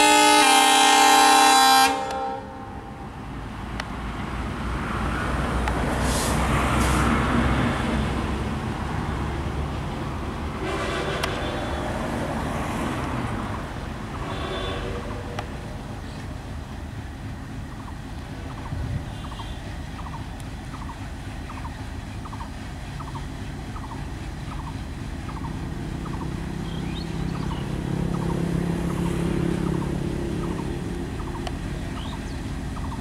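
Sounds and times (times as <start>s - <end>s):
locomotive horn: 0.0s - 3.2s, 10.5s - 12.8s, 14.1s - 15.4s
locomotive engine rumbling: 0.0s - 33.0s.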